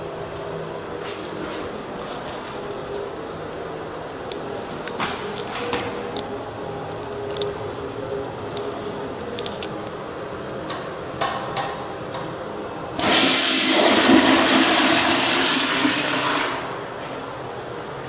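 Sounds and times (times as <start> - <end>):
toilet flushing whoosh: 13.0 - 17.0.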